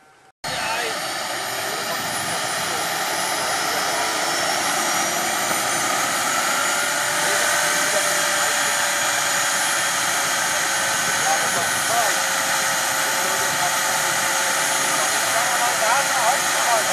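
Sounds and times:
model turboprop turbine whine: 0.0 - 16.9.

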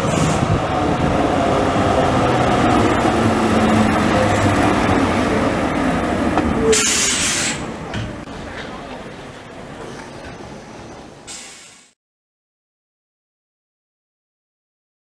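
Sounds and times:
tram running on track: 0.0 - 12.0
loud hiss: 6.8 - 7.7, 11.3 - 12.0.

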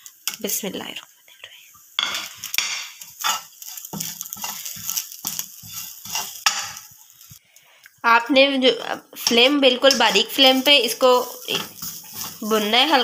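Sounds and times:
spatula scraping frying pan: 2.0 - 7.4, 9.2 - 13.0.

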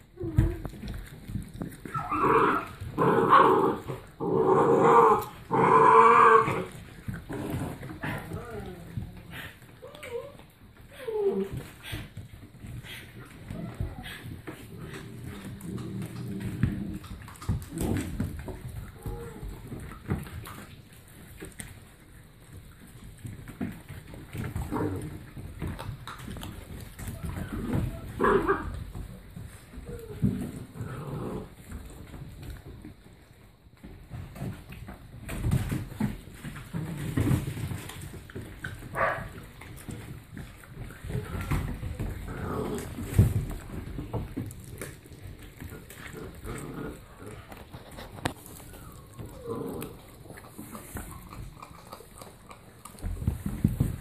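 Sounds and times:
puppy growling: 0.0 - 33.0, 33.8 - 54.0
paws on wooden floor: 0.0 - 54.0
chewing clicks: 44.4 - 53.0.

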